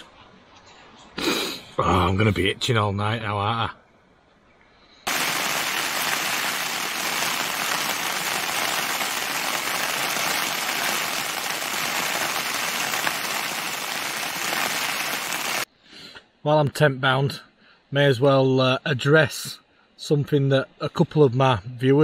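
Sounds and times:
heavy rain on a tent: 5.1 - 15.7.

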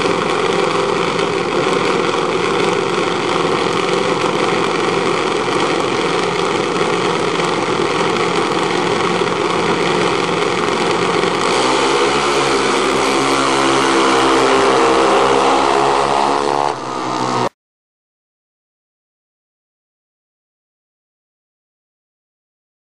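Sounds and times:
dragster engines running: 0.0 - 17.5
engine accelerating: 0.0 - 17.5.

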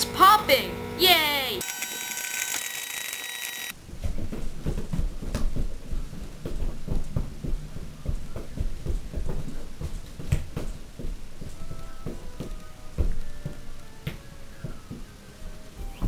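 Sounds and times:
hum with high whining tones: 0.0 - 3.8
feet stomping on floor: 3.8 - 16.0.

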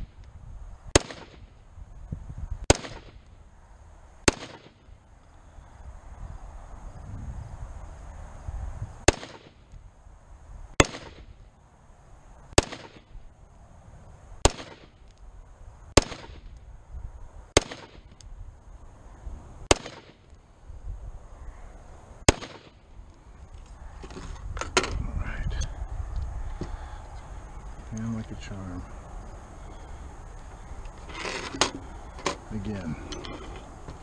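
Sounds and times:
rifle shots: 0.9 - 1.5, 2.7 - 3.2, 4.2 - 4.8, 9.0 - 9.6, 10.8 - 11.3, 12.5 - 13.1, 14.4 - 15.0, 16.0 - 16.5, 17.5 - 18.2, 19.6 - 20.3, 22.3 - 22.8.

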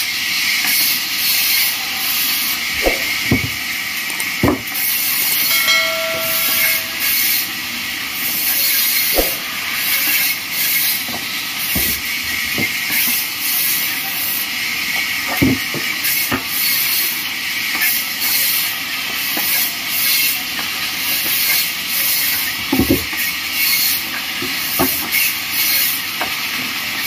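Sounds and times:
short held tone: 5.4 - 7.6, 9.1 - 9.9.

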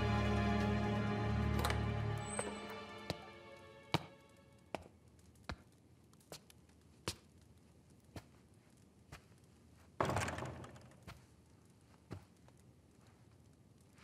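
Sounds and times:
footsteps on stone floor: 1.6 - 3.3, 3.9 - 10.0.

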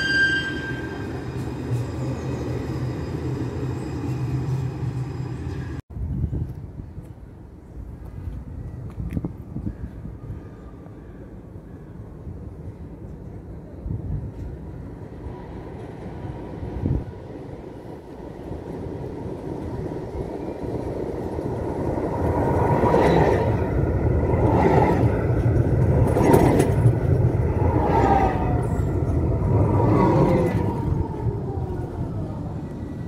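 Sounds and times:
tram clanks: 0.0 - 5.8, 17.8 - 31.3
tram wheels rumbling on rails: 0.0 - 33.0.

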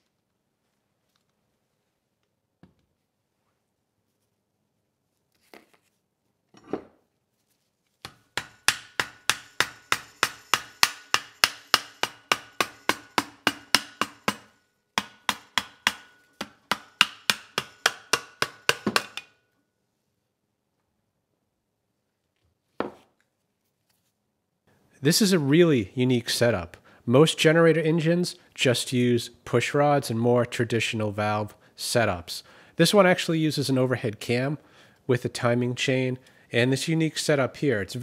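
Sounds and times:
hammer tapping metal cover: 8.4 - 19.3.

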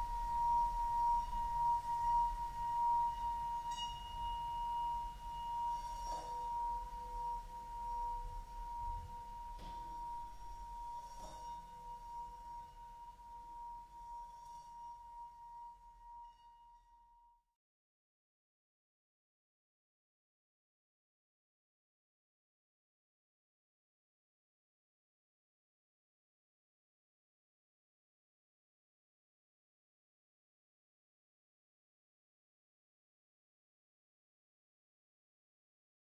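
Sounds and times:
soft strike with lower ringing: 0.0 - 17.2
high ringing tone: 0.0 - 17.3.

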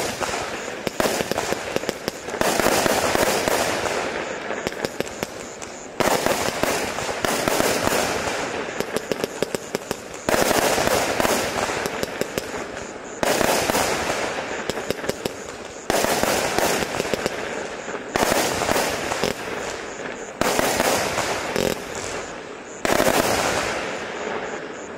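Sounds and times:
crackle of small pops: 0.0 - 2.7, 4.3 - 10.5, 14.6 - 16.0, 19.0 - 20.3.

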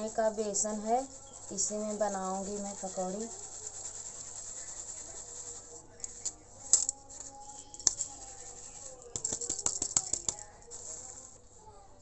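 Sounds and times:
sieve rattling: 0.0 - 11.4
flour rubbing on sieve mesh: 0.0 - 12.0
sieve tapping: 6.0 - 11.0.

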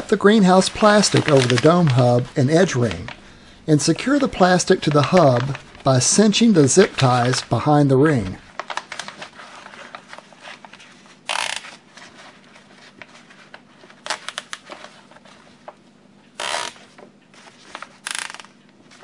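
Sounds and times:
plastic sheeting rustling: 0.0 - 3.1
zip ties ratcheting: 11.3 - 11.7, 16.4 - 16.8, 18.0 - 18.6.

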